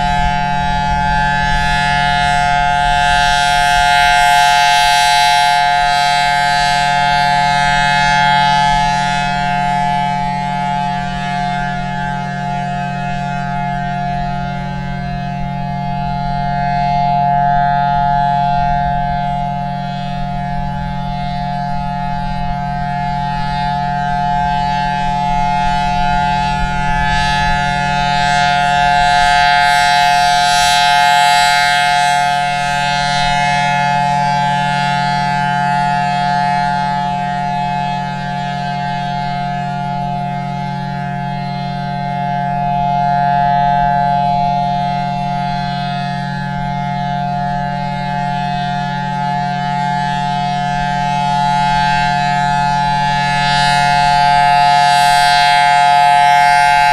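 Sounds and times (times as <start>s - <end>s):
rotating siren steady tone: 0.0s - 56.9s.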